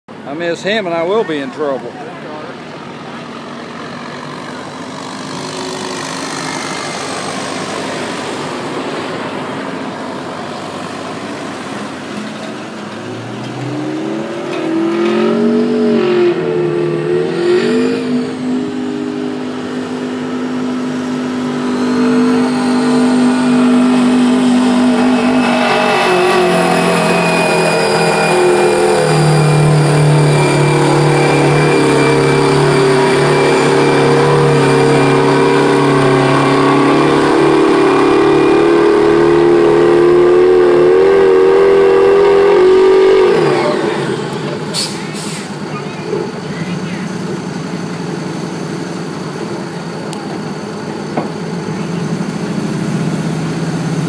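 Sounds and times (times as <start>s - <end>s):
diesel truck engine pulling hard: 0.1s - 54.0s.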